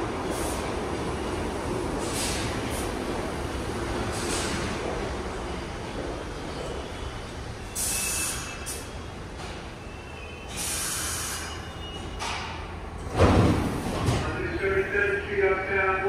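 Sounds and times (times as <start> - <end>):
train low rumble: 0.0 - 7.8
air hissing bursts: 10.5 - 11.6.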